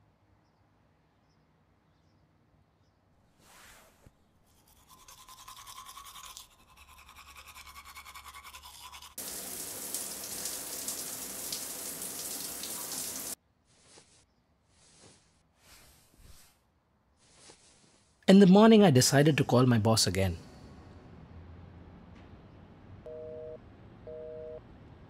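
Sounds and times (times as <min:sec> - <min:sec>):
toothbrush scrubbing teeth: 0:04.5 - 0:10.6
shower spray running: 0:09.2 - 0:13.4.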